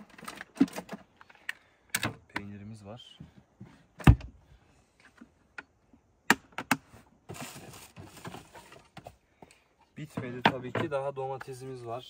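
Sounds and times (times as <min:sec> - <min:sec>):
containers set down on wood: 0:06.6 - 0:09.2.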